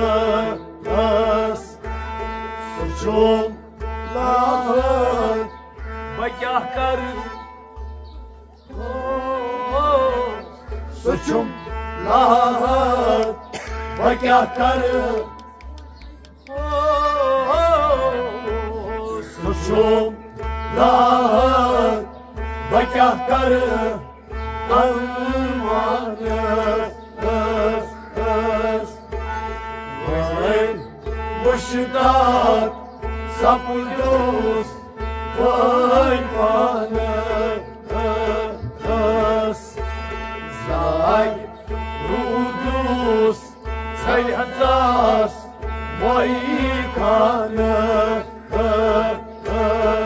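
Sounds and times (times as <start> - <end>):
man singing: 0.0 - 1.9, 2.6 - 7.5, 8.7 - 15.4, 16.5 - 50.0
harmonium: 0.0 - 50.0
rabab: 0.0 - 50.0.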